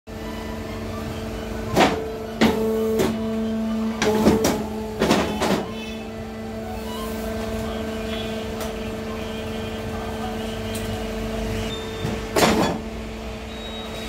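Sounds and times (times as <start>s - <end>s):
paper cutter machine humming: 0.1s - 14.0s
sharp machine knocks and clunks: 1.7s - 3.2s, 4.0s - 5.8s, 12.0s - 12.8s.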